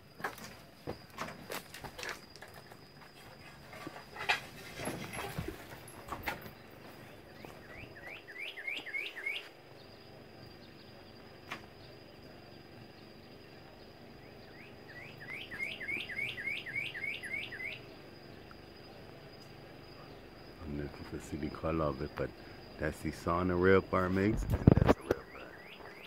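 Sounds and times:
cardinal whistling song: 0:07.4 - 0:09.5, 0:14.2 - 0:17.9, 0:25.0 - 0:26.0.

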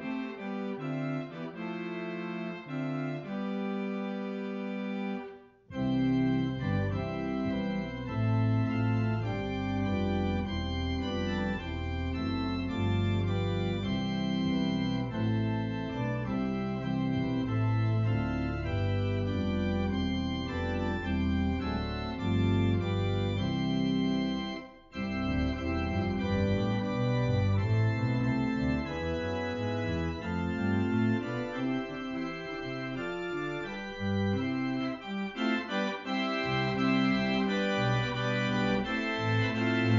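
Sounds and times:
church organ chords: 0:00.0 - 0:39.9.

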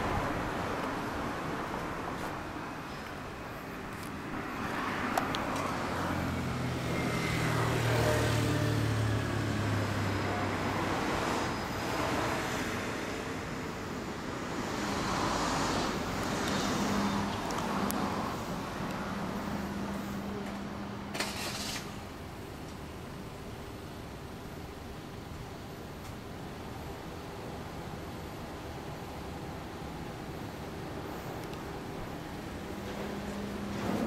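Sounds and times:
vehicles passing: 0:00.0 - 0:34.0.

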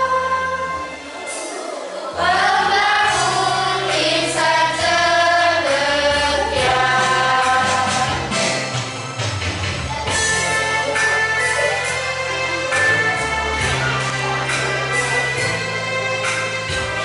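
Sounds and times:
children's choir singing: 0:00.0 - 0:08.8.

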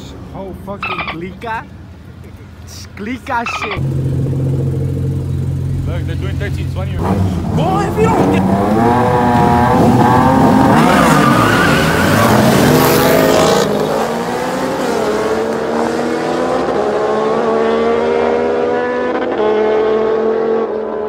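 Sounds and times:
tyres skidding: 0:00.0 - 0:19.8
car engines revving: 0:00.0 - 0:21.0.

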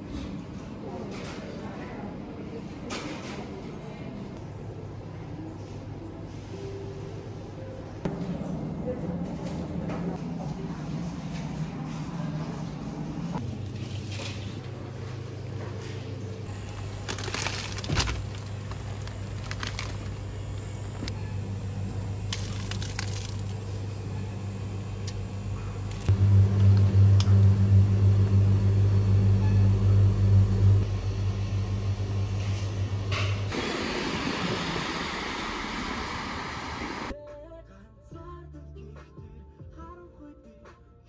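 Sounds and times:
refrigerator hum: 0:08.0 - 0:37.1
packaging crackling: 0:16.6 - 0:20.7, 0:22.3 - 0:23.7.

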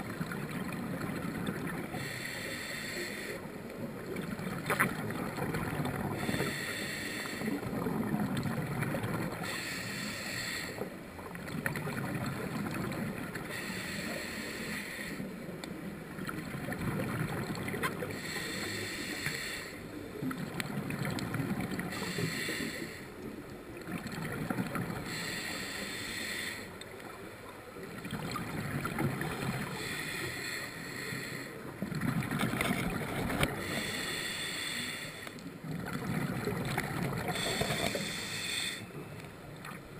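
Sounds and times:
regulator hiss on inhale: 0:01.8 - 0:03.6, 0:06.1 - 0:07.7, 0:09.4 - 0:11.0, 0:13.4 - 0:15.3, 0:18.0 - 0:20.0, 0:21.9 - 0:23.3, 0:25.0 - 0:26.8, 0:29.6 - 0:31.7, 0:33.5 - 0:35.5, 0:37.3 - 0:39.0
exhaled bubbles rumbling: 0:03.9 - 0:06.3, 0:07.6 - 0:09.4, 0:11.3 - 0:13.4, 0:16.1 - 0:18.2, 0:20.2 - 0:22.0, 0:23.7 - 0:25.1, 0:27.9 - 0:29.8, 0:31.8 - 0:33.6, 0:35.6 - 0:38.0.

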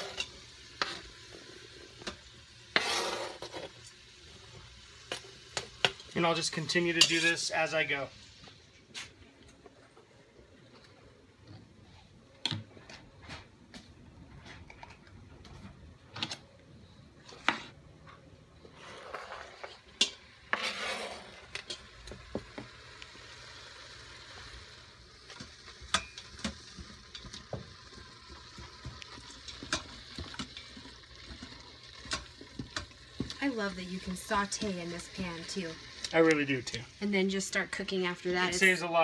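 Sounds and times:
food scraped into pot: 0:00.0 - 0:03.9, 0:18.6 - 0:21.9
meat sizzling: 0:00.0 - 0:09.2, 0:18.7 - 0:39.0.

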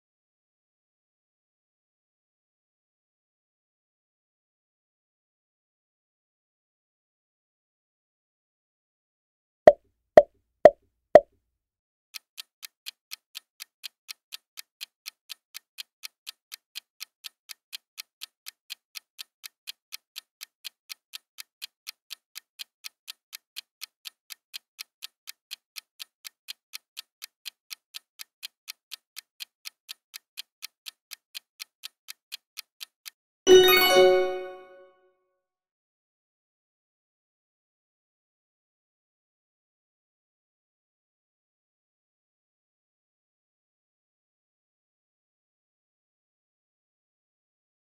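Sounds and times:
clock ticking: 0:12.2 - 0:34.6
bright chime: 0:33.5 - 0:34.9.

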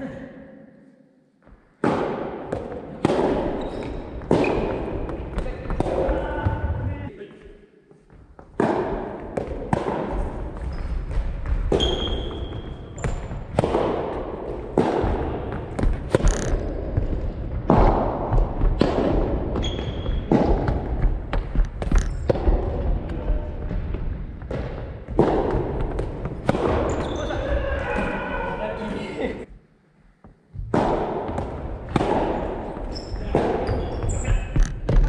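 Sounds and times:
rackets hitting ball: 0:01.8 - 0:06.8, 0:08.4 - 0:28.1, 0:30.5 - 0:35.0
shoes squeaking on floor: 0:03.6 - 0:04.8, 0:10.6 - 0:11.1, 0:11.7 - 0:13.2, 0:19.6 - 0:20.3, 0:21.9 - 0:22.3, 0:26.8 - 0:27.6, 0:32.7 - 0:35.0
ball bouncing on wooden floor: 0:14.5 - 0:27.2, 0:30.2 - 0:35.0.

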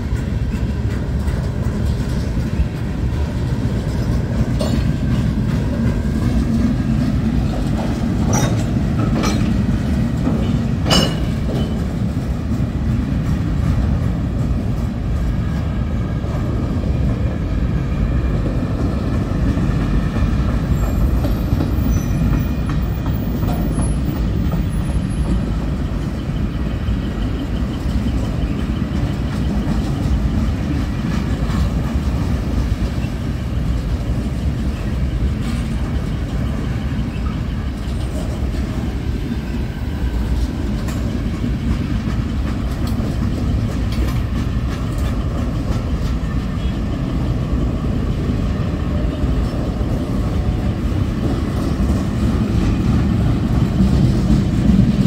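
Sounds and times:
freight train wheels rumbling: 0:00.0 - 0:55.0
freight car clanks: 0:10.2 - 0:11.9.

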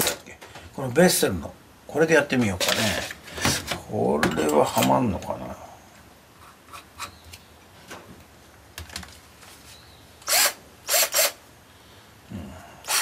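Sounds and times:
drill bit and chuck clicking: 0:10.2 - 0:11.4
drill chuck ratcheting: 0:10.2 - 0:11.4.

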